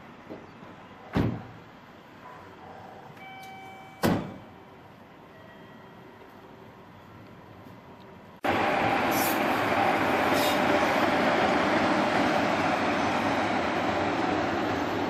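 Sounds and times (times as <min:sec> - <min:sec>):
locomotive rumbling on rails: 0:08.4 - 0:15.0
brief high hisses: 0:09.1 - 0:09.6, 0:10.3 - 0:10.8.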